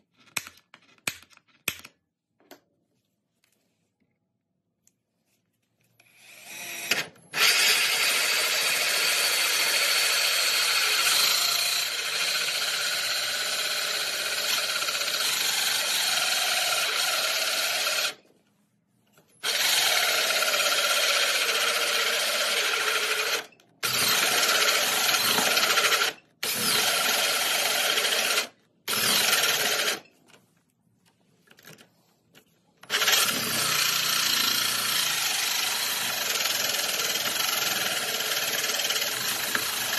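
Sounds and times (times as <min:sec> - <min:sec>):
drill hole saw cutting board: 0:06.2 - 0:18.2, 0:19.4 - 0:30.0, 0:32.9 - 0:39.9.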